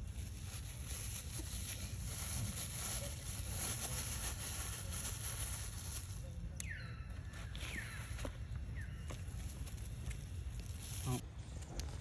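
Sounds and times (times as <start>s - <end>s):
constant high hiss: 7.8s - 12.0s.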